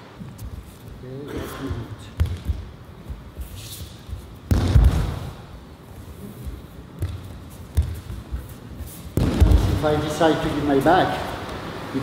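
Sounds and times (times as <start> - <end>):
feet thumping on mat: 6.4 - 9.8.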